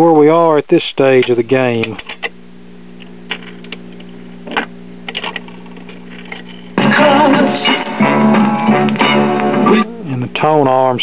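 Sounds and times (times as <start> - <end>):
record player hum: 0.0 - 11.0
record playing through speakers: 0.0 - 11.0
record changer mechanical clicks: 0.4 - 2.4, 3.0 - 6.6.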